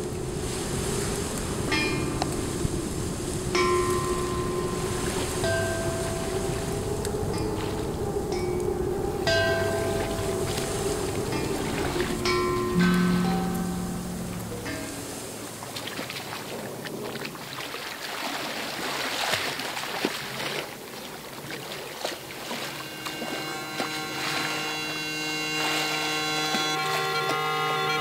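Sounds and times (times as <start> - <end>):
droning music of held notes: 0.0 - 15.7, 22.6 - 28.0
river water: 0.0 - 28.0
wind: 0.0 - 28.0.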